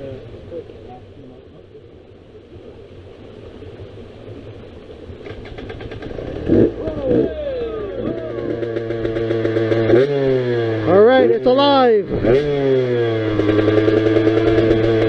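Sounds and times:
dirt bike engine revving: 5.3 - 15.0.

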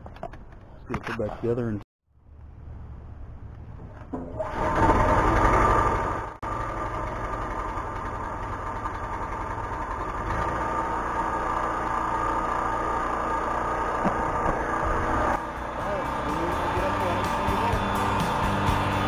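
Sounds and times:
generator engine running: 4.4 - 19.0.

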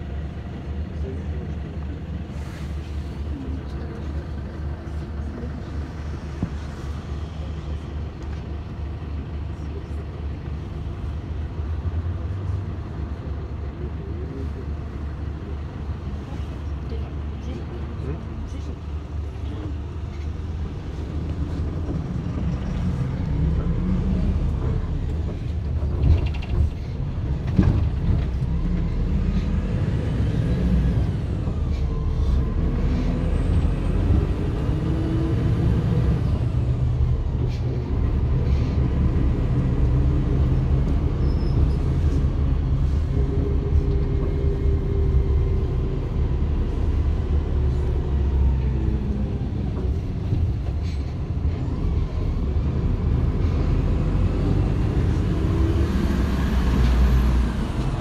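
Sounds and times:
bus engine: 0.0 - 58.0
road rumble: 0.0 - 58.0.

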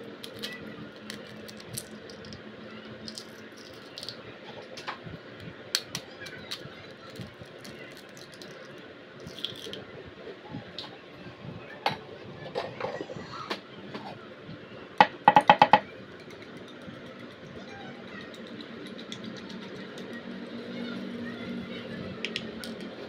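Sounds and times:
eggshells cracking: 0.2 - 2.4, 3.0 - 4.2, 5.7 - 9.8.

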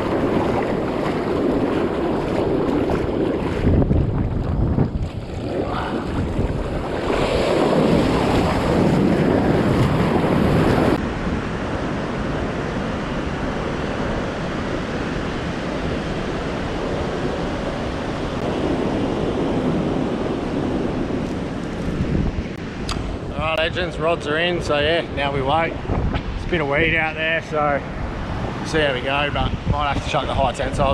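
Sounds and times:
ocean surf on beach: 0.0 - 30.9
wind buffeting microphone: 0.0 - 30.9.

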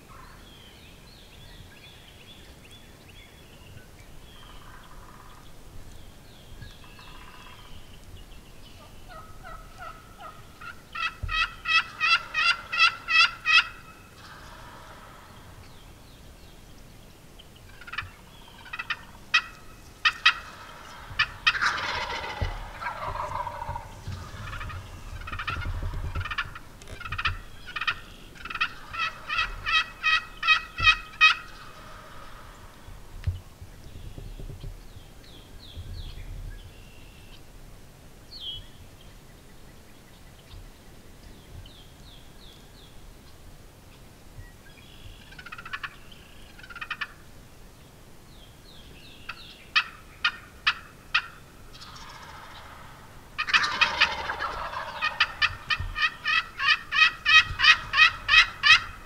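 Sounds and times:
turkeys gobbling: 4.4 - 5.5, 6.9 - 8.0, 8.7 - 15.8, 17.7 - 33.1, 45.2 - 47.3, 49.2 - 59.0.

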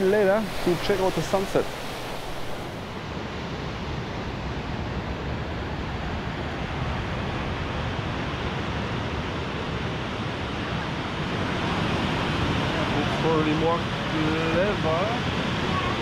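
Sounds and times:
wind buffeting microphone: 0.0 - 3.4
ocean surf rushing: 0.0 - 16.0.

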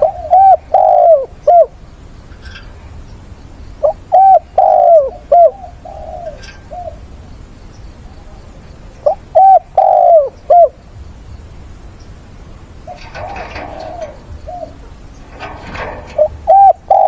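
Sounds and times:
dove cooing: 0.0 - 1.8, 3.8 - 7.1, 9.0 - 10.8, 12.8 - 17.0.

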